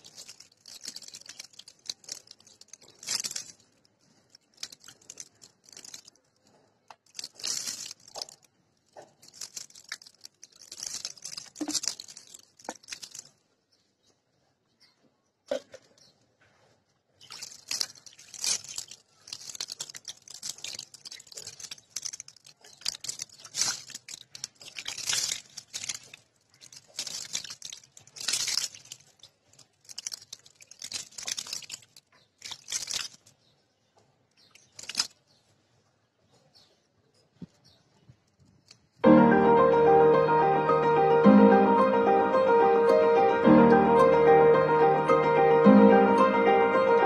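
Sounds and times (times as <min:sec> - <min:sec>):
water splashing onto muddy soil: 0:00.0 - 0:03.6, 0:17.2 - 0:33.3.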